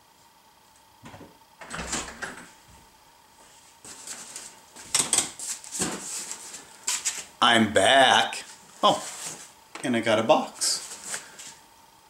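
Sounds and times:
door opening with rattle: 0:01.6 - 0:02.5
footsteps: 0:02.6 - 0:07.3.

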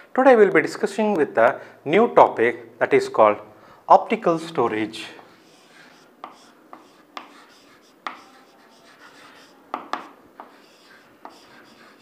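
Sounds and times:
chalk scratching on a board: 0:05.2 - 0:12.0
chalk tapping on a chalkboard: 0:05.2 - 0:12.0.

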